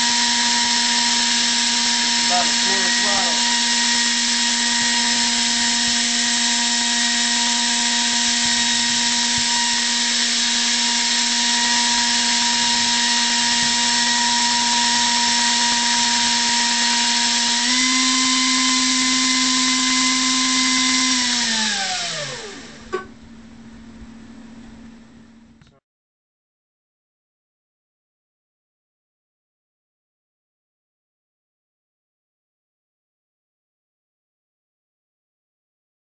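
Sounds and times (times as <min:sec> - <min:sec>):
electric ducted fan whining: 0:00.0 - 0:25.8.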